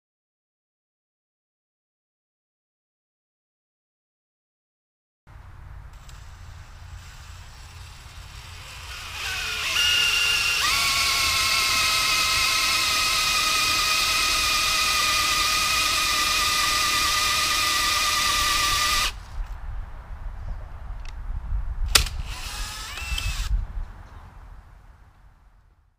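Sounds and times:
power tool motor whine: 0:06.0 - 0:19.2, 0:22.0 - 0:23.5
sharp click: 0:21.9 - 0:23.5.

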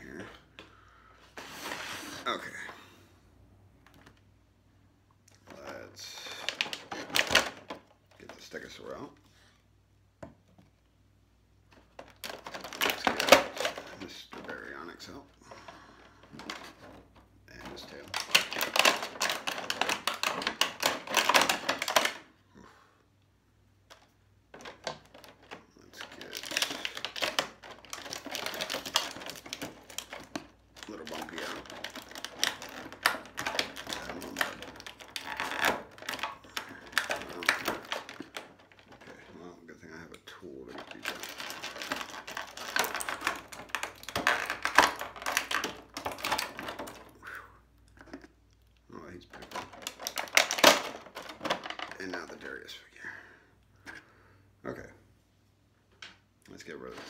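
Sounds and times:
plastic blister packaging crackling: 0:05.3 - 0:09.1, 0:11.7 - 0:22.3, 0:23.9 - 0:47.2, 0:49.0 - 0:52.5.

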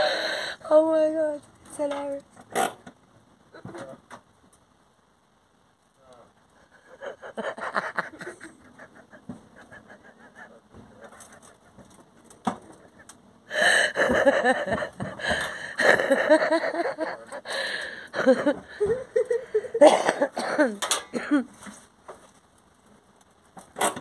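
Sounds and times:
person laughing hard: 0:06.8 - 0:10.4, 0:12.8 - 0:21.4.

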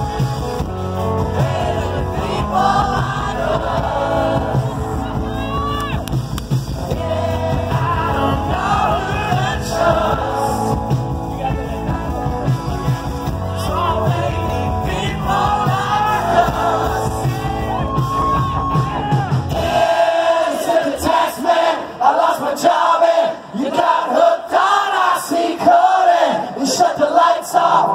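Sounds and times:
rock band playing: 0:00.0 - 0:20.2
crowd: 0:00.0 - 0:27.9
person singing into a microphone: 0:13.4 - 0:18.4.

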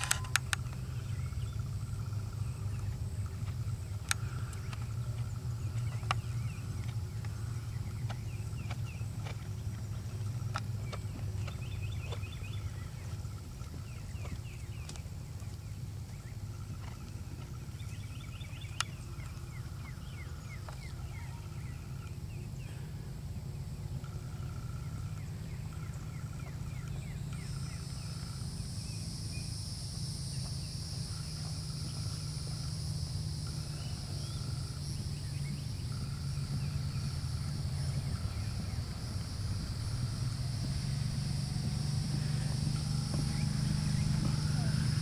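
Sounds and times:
birds chirping: 0:00.0 - 0:45.0
high insect drone: 0:00.0 - 0:45.0.

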